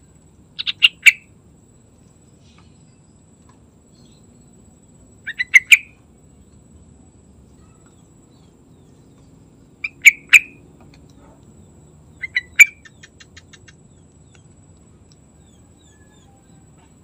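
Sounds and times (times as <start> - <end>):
bird calling: 0.6 - 1.3, 5.2 - 6.0, 7.6 - 10.6, 12.1 - 14.6, 15.3 - 17.0.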